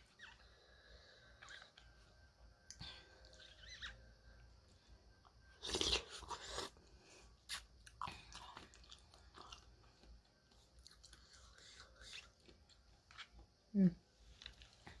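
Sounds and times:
chewing: 7.5 - 13.4.

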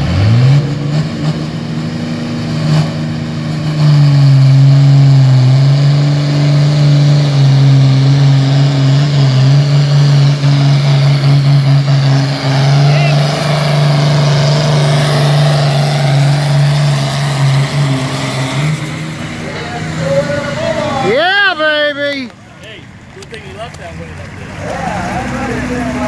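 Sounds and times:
tractor diesel engine droning: 0.0 - 26.0.

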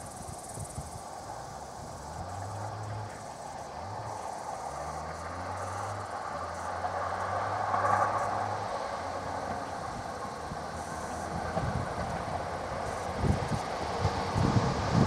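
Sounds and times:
train wheels rumbling on rails: 0.0 - 15.0
rail joint clicks: 9.3 - 14.8.

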